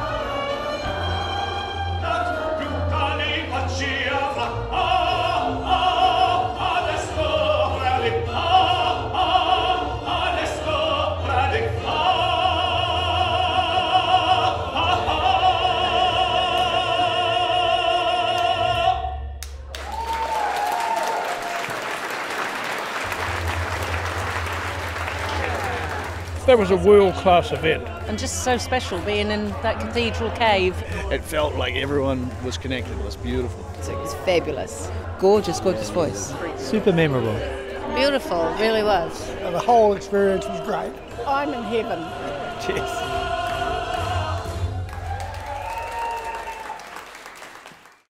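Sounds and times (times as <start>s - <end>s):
musical accompaniment: 0.0s - 20.0s, 22.9s - 47.7s
man singing operatic tenor: 2.0s - 19.2s
audience applause: 19.4s - 31.2s, 42.9s - 48.0s.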